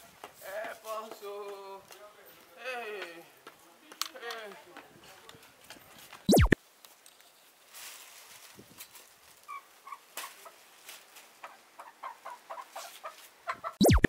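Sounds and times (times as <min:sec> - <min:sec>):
hen clucking: 0:11.4 - 0:14.0.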